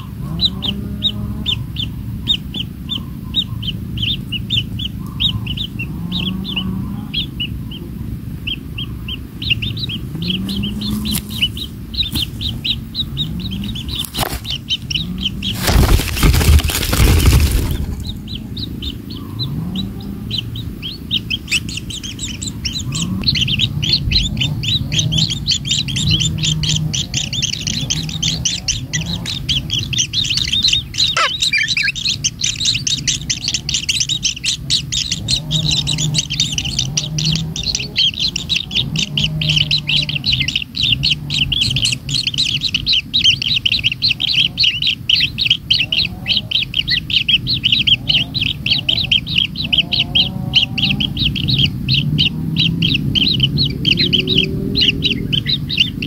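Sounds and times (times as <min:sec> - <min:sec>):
low hum: 0:00.0 - 0:42.9
nestlings chirping: 0:00.0 - 0:56.0.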